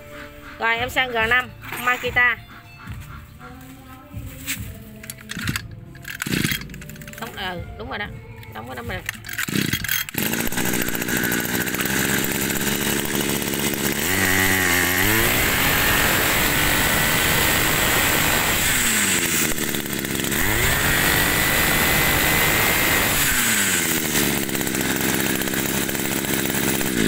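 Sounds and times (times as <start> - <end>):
grass trimmer engine revving: 5.0 - 7.4, 9.0 - 27.0.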